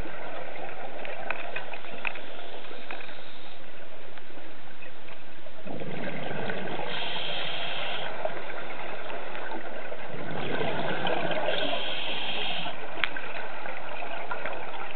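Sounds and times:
steady hiss: 0:01.8 - 0:04.6, 0:06.7 - 0:09.4, 0:11.0 - 0:13.0
underwater breath bubbles: 0:05.7 - 0:13.0.

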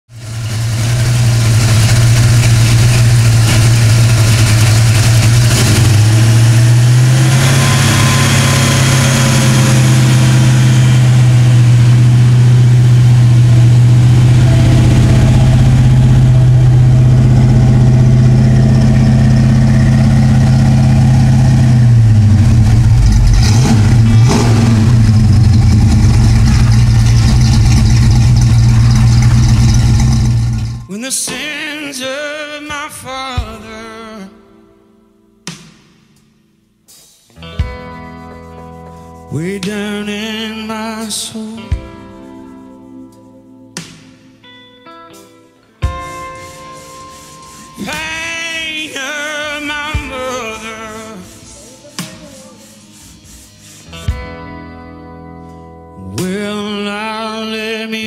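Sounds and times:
car engine idling: 0:00.1 - 0:30.9.

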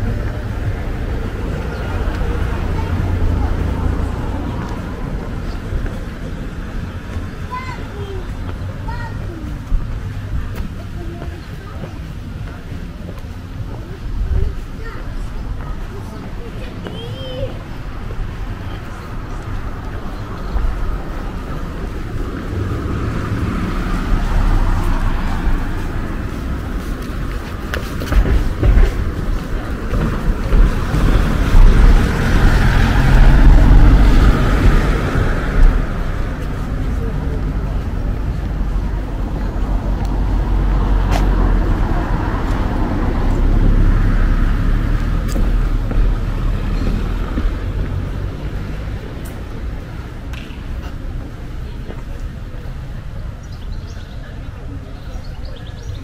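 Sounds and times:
low traffic rumble: 0:00.0 - 0:56.0
car tyre noise: 0:17.8 - 0:53.2.

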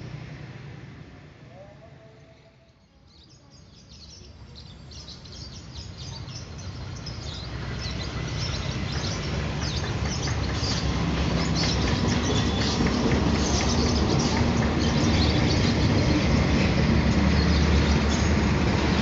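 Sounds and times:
birds chirping: 0:01.5 - 0:19.0
diesel locomotive rumble: 0:06.9 - 0:19.0.

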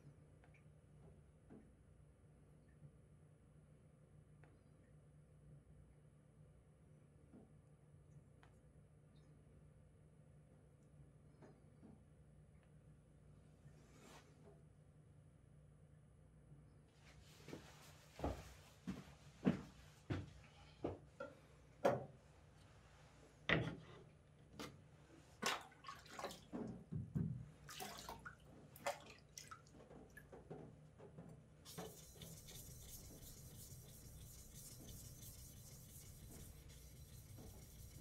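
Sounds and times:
water splashing and dripping: 0:25.4 - 0:26.7, 0:27.7 - 0:30.3.

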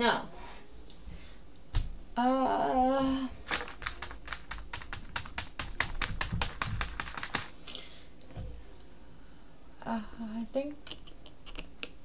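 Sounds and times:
rapid keyboard typing: 0:03.5 - 0:07.6.

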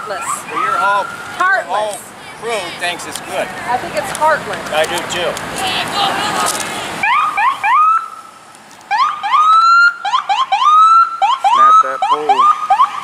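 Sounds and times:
emergency siren whooping: 0:00.0 - 0:01.4, 0:07.0 - 0:08.3, 0:08.9 - 0:13.0.

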